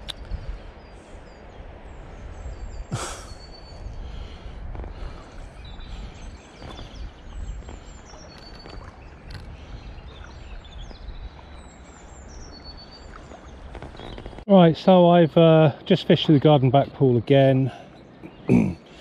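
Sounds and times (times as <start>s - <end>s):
wind on microphone: 0.0s - 12.4s
moving water: 0.0s - 19.0s
birds whistling calls: 0.7s - 14.4s.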